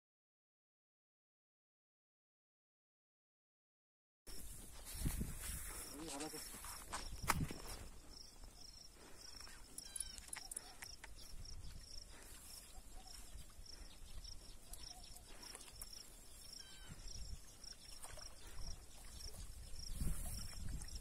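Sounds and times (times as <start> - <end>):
insect chirping: 4.3 - 21.0.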